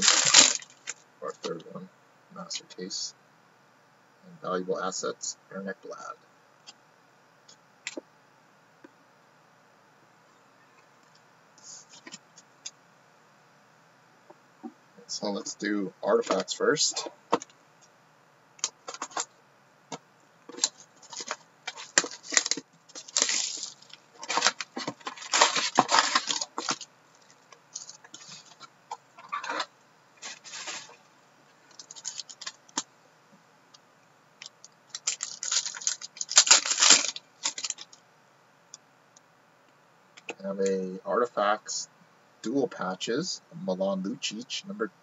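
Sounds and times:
plastic wrappers crinkling and tearing: 0.0 - 1.0, 20.5 - 31.0, 31.7 - 32.8, 34.6 - 38.0.

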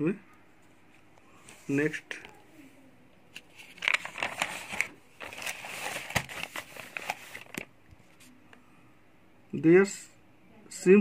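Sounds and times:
book page turning: 3.3 - 8.4.

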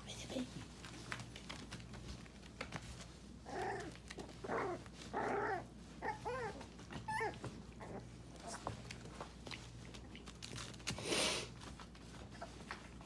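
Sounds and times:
puppies growling: 3.4 - 10.5
puppies yipping: 4.5 - 8.0.

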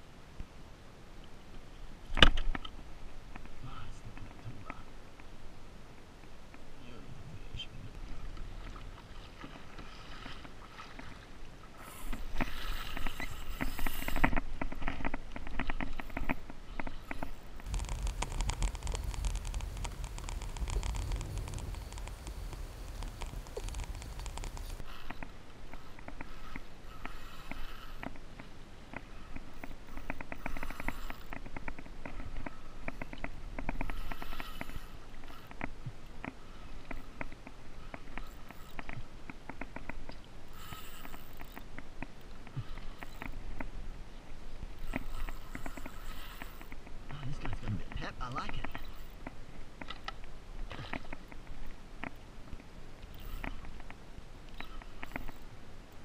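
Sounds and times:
fishing reel clicking: 17.1 - 25.2, 37.9 - 38.9, 40.5 - 41.7, 44.8 - 46.8, 53.1 - 53.8, 54.6 - 55.5
water splashing against kayak hull: 17.6 - 24.9.

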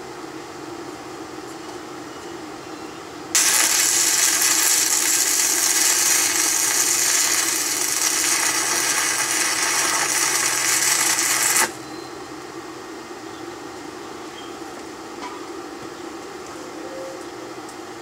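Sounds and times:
arc welding crackling hiss: 3.3 - 11.8.

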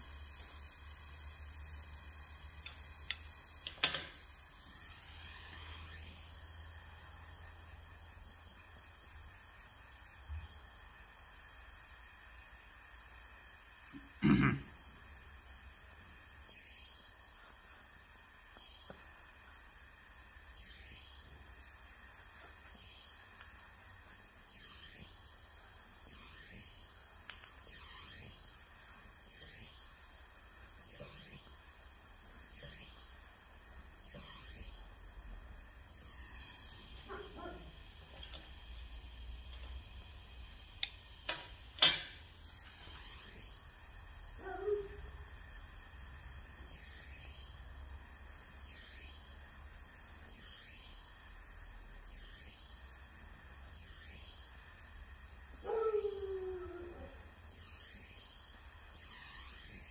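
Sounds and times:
torch flame hissing: 0.0 - 59.9
pliers clicking on metal bench: 2.6 - 4.2, 40.8 - 42.2.

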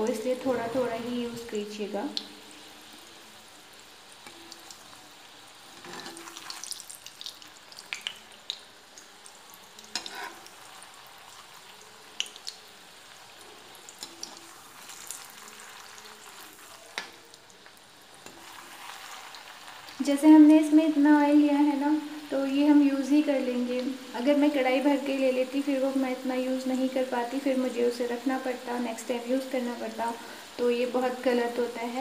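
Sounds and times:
frying sizzle: 0.0 - 32.0
metal skimmer scraping pan: 5.8 - 6.4.

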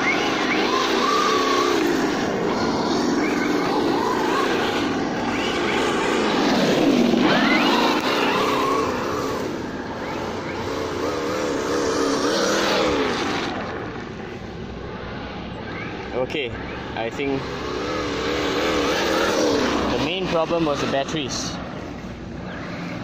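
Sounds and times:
simulated engine sound: 0.0 - 23.0.

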